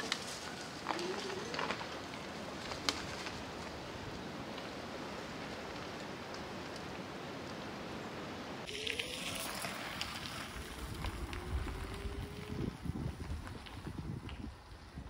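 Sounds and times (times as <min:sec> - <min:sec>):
tyres ticking on gravel: 0:00.0 - 0:07.9, 0:08.6 - 0:14.9
wind hiss: 0:00.0 - 0:15.0
wind rumbling on microphone: 0:00.0 - 0:15.0
electric bike motor whine: 0:08.6 - 0:15.0.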